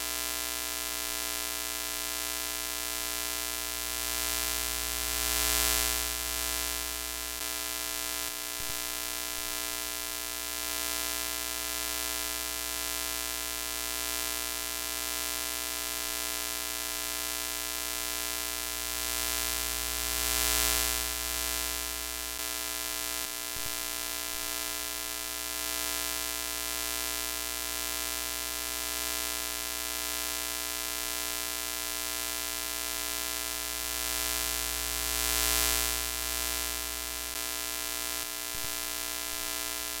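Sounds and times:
tv static buzz and hiss: 0:03.6 - 0:07.7, 0:18.2 - 0:23.8, 0:32.4 - 0:40.0.

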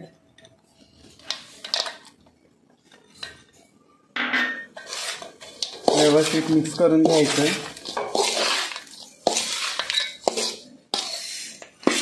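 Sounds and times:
metal spoon scraping a metal bowl: 0:04.6 - 0:12.0.

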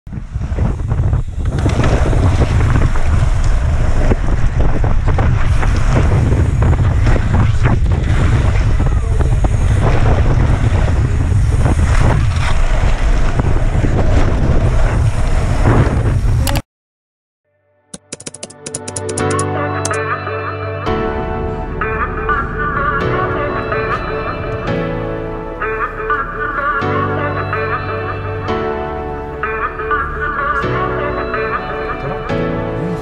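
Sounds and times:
wind buffeting microphone: 0:00.1 - 0:16.6.

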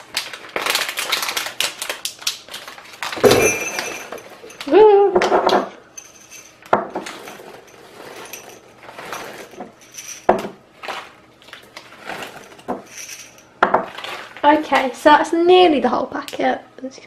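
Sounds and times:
chips rattling into cup: 0:00.0 - 0:04.8, 0:06.0 - 0:14.9
plastic packet rustling: 0:00.0 - 0:04.8, 0:07.0 - 0:15.1.

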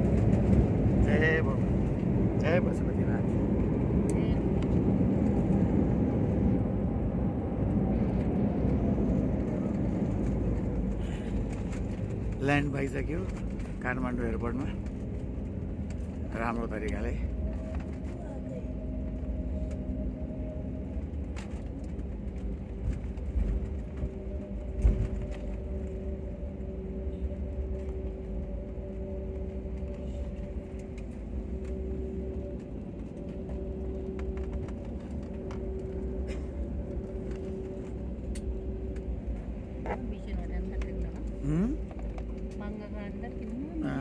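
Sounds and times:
engines and wheels rumbling: 0:00.0 - 0:44.0.

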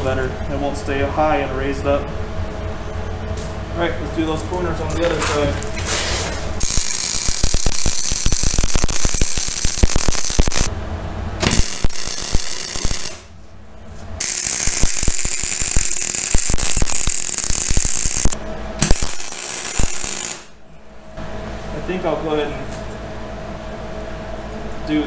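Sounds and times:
welder arc crackling: 0:06.6 - 0:10.7, 0:11.4 - 0:13.3, 0:14.2 - 0:20.6.

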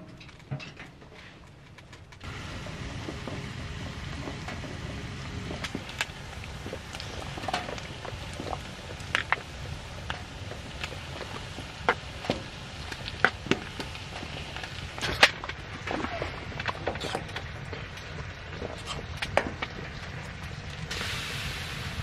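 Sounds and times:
steady low rumble: 0:01.5 - 0:22.0
oil popping in a skillet: 0:01.7 - 0:22.0.

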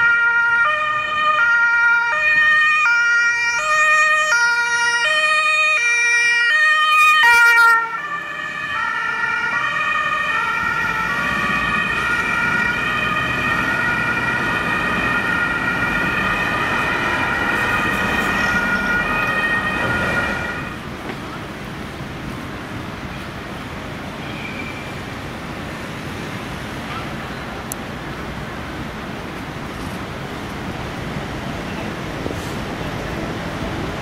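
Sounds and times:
two-tone ambulance siren: 0:00.0 - 0:20.8
traffic: 0:00.0 - 0:34.0.

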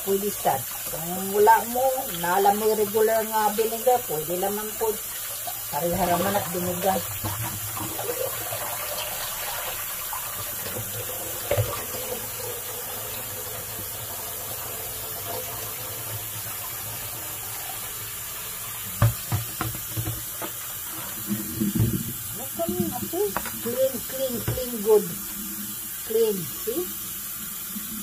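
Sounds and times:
tap running into steel sink: 0:10.5 - 0:12.0, 0:18.9 - 0:20.6, 0:21.2 - 0:24.8.

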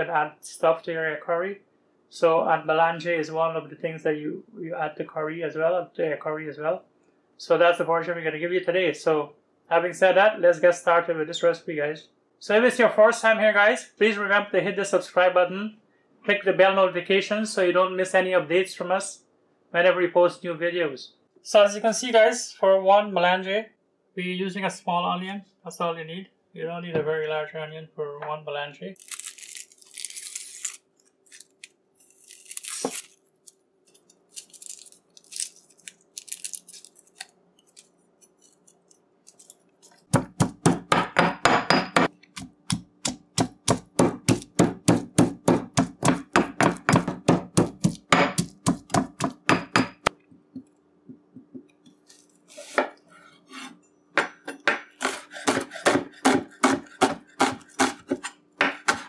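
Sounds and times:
knife chopping on wooden board: 0:40.1 - 0:50.2, 0:54.2 - 0:59.0
pestle pounding in stone mortar: 0:40.1 - 0:50.2, 0:54.6 - 0:59.0.

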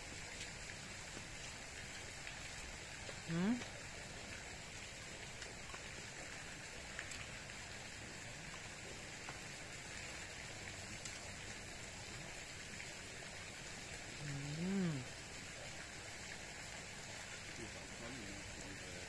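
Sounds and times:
outdoor background hiss: 0:00.0 - 0:19.0
soft clicks of eating: 0:06.9 - 0:07.3.

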